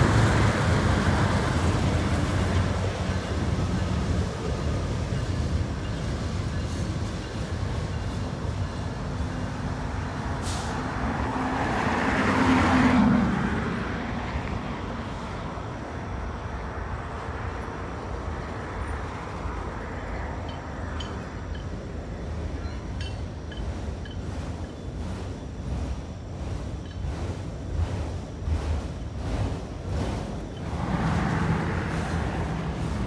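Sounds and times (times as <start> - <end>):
train wheels rumbling on rail: 0.0 - 33.0
rushing noise: 21.9 - 33.0.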